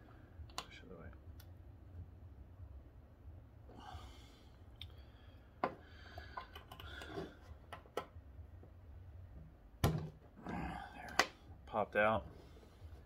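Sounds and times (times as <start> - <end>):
steady low hum: 0.0 - 13.0
soft breath: 3.7 - 7.6.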